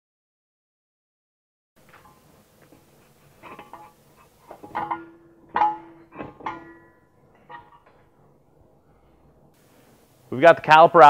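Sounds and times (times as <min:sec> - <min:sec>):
metallic clinks and clanks: 0:01.8 - 0:08.3.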